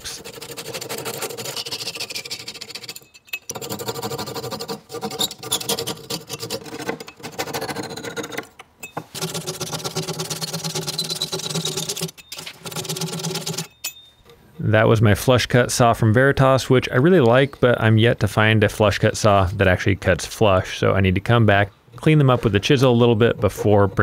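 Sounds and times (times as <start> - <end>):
saw rasping through wood: 0.0 - 8.5, 9.1 - 13.7.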